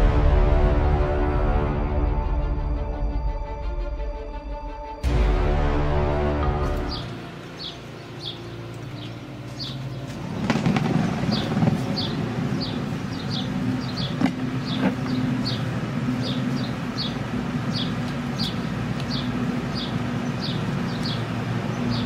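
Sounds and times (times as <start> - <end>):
electric blower humming: 5.0 - 22.0
bird chirping: 6.6 - 22.0.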